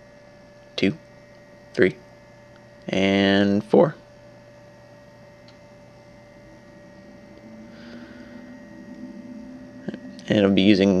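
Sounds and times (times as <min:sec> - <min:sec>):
electrical mains hum: 0:00.0 - 0:11.0.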